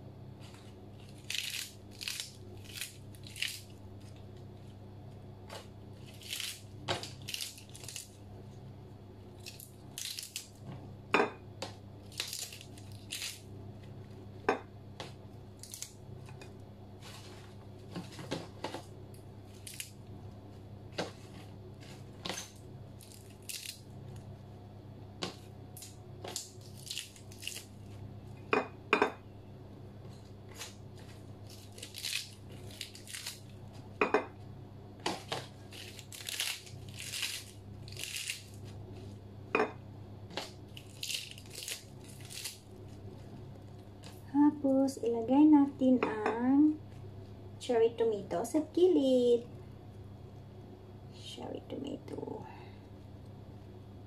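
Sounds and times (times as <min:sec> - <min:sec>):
steady low hum: 0:00.0 - 0:54.0
lettuce leaves tearing: 0:01.0 - 0:04.2, 0:05.5 - 0:08.2, 0:09.3 - 0:10.6, 0:12.0 - 0:13.5, 0:15.6 - 0:16.0, 0:19.5 - 0:20.0, 0:23.0 - 0:24.2, 0:25.8 - 0:27.8, 0:30.5 - 0:33.5, 0:35.2 - 0:39.1, 0:40.3 - 0:42.9.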